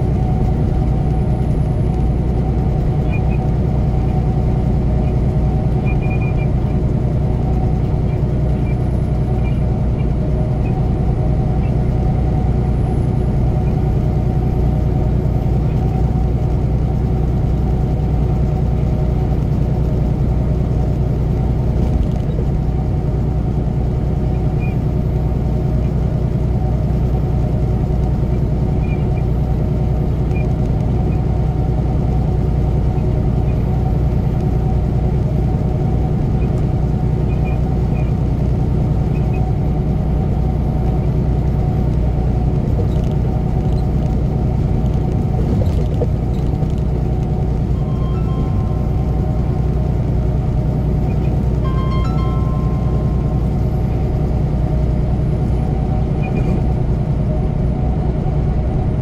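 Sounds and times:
truck engine drone: 0:00.0 - 0:59.0
tyre and road noise: 0:28.1 - 0:59.0.

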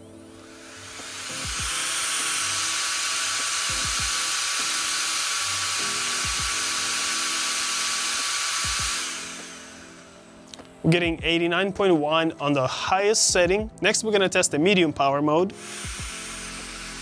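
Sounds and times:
electric air blower whining: 0:00.0 - 0:10.4, 0:15.5 - 0:17.0.

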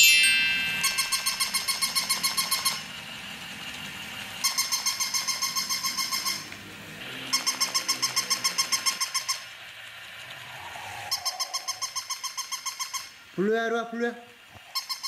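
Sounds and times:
toy dog electronic yapping: 0:00.8 - 0:03.0, 0:04.4 - 0:09.7, 0:11.0 - 0:13.2, 0:14.7 - 0:15.0.

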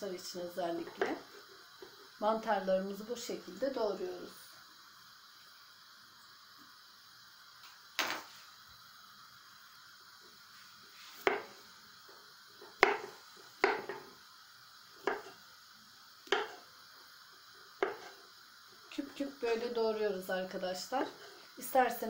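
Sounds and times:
knife chopping on wooden board: 0:01.0 - 0:01.2, 0:11.2 - 0:11.5, 0:12.8 - 0:14.0, 0:15.0 - 0:15.3, 0:16.3 - 0:16.6, 0:17.8 - 0:18.1.

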